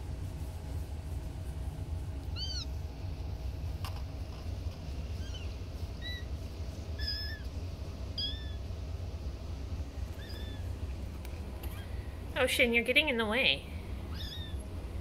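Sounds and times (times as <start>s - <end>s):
kittens mewing: 2.3s - 2.8s, 5.1s - 8.7s, 10.1s - 10.8s, 14.0s - 14.7s.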